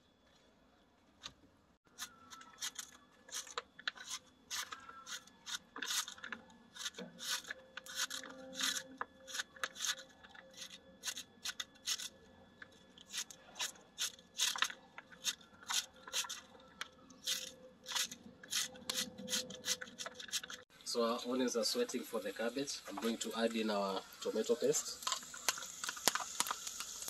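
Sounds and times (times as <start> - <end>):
knife slicing cabbage: 2.0 - 12.1.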